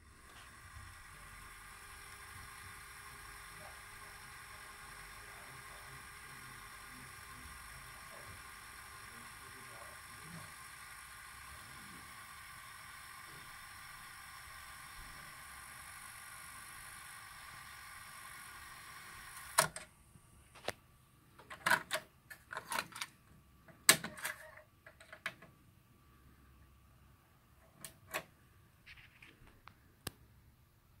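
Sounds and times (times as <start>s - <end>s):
cassette deck rewinding whir: 0.0s - 19.9s.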